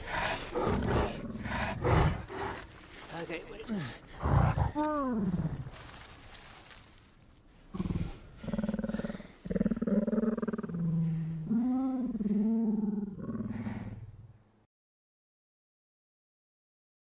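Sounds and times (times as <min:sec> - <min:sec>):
high bell-like ring: 0:02.8 - 0:04.0, 0:05.6 - 0:07.5
creature growling: 0:07.7 - 0:14.1.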